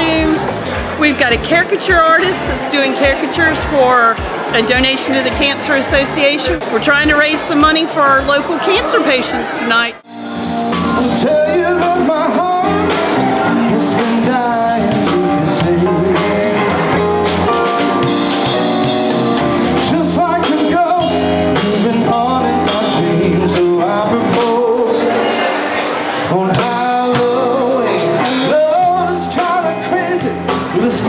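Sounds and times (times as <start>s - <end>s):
person singing lead vocal: 0.0s - 4.0s, 10.7s - 17.6s, 19.8s - 31.0s
live rock band playing: 0.0s - 31.0s.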